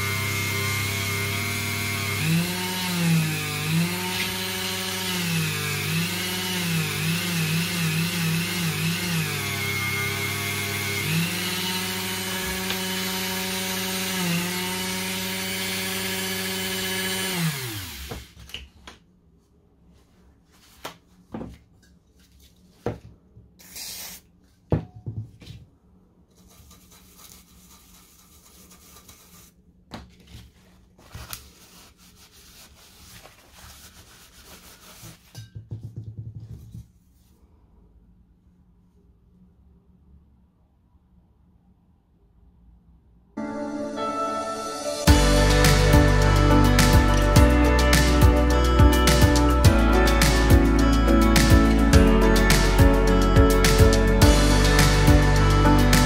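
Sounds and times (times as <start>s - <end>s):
rotary tool motor whining: 0.0s - 18.2s.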